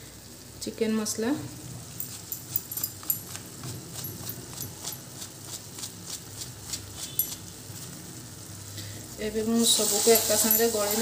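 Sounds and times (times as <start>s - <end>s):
spice carton shaken and tapped: 2.1s - 7.4s.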